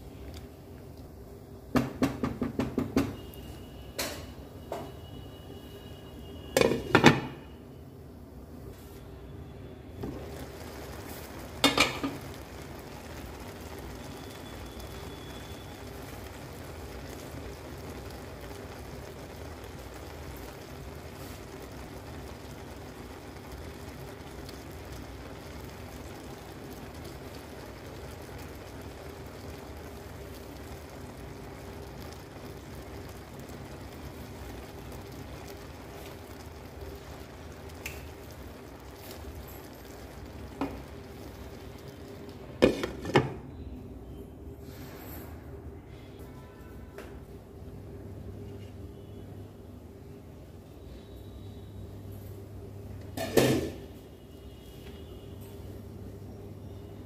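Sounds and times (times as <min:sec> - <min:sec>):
utensil knocking on pan: 0:01.8 - 0:03.2
steady low hiss: 0:07.6 - 0:42.6.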